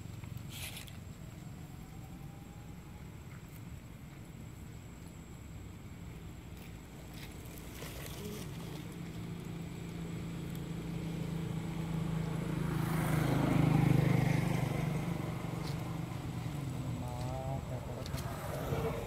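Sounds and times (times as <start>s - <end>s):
vehicle engine passing by: 8.0s - 19.0s.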